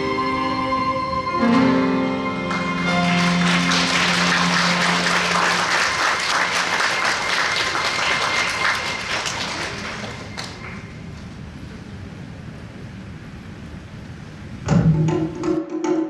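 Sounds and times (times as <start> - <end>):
music held chord: 0.0 - 9.1
audience applauding: 2.4 - 11.1.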